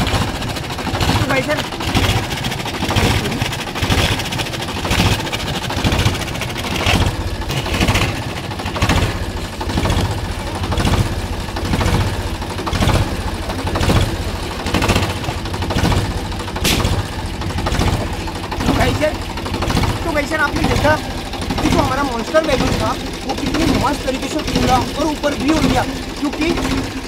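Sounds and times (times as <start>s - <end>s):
sharp crack: 0.0s - 23.9s
tractor engine idling: 0.0s - 27.0s.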